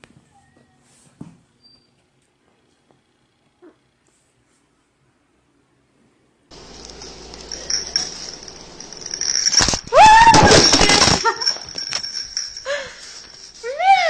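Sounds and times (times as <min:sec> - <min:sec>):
faint high whine: 0:06.5 - 0:13.7
noisy scuffle: 0:06.5 - 0:14.0
high-pitched drawn-out cry: 0:09.8 - 0:11.5, 0:13.6 - 0:14.0.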